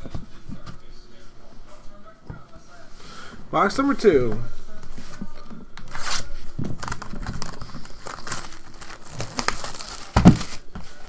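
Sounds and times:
plastic shrink-wrap crackling: 5.9 - 11.0.

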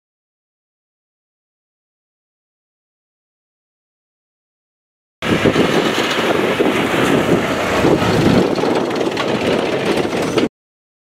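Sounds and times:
tractor engine running: 5.2 - 10.5
wind buffeting microphone: 5.2 - 10.5.

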